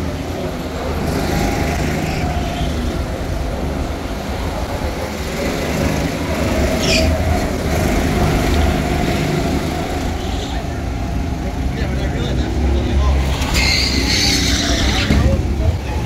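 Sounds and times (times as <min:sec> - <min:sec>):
go-kart engines droning: 0:00.0 - 0:16.0
brief high squeal: 0:13.5 - 0:15.1.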